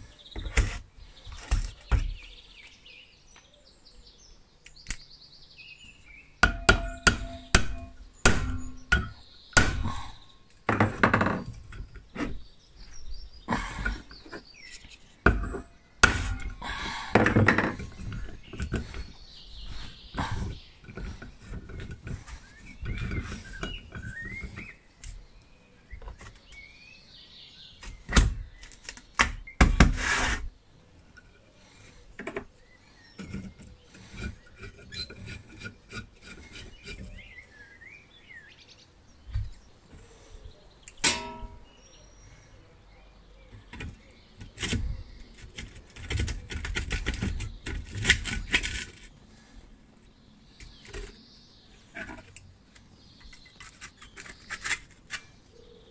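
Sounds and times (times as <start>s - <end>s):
metal knocks and clanks: 6.4s - 10.0s, 41.0s - 41.7s
ringing metal clink: 41.0s - 41.7s.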